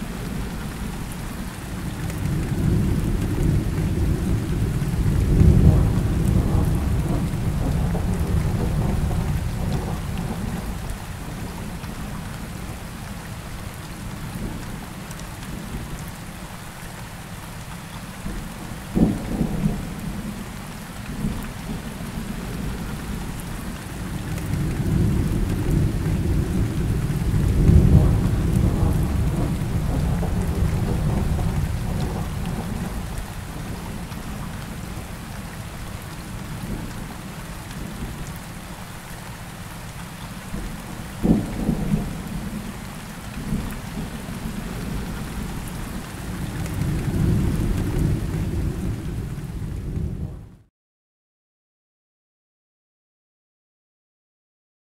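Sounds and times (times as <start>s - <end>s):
steady rain: 0.0s - 50.7s
rolling thunder: 2.4s - 10.9s, 24.5s - 34.0s.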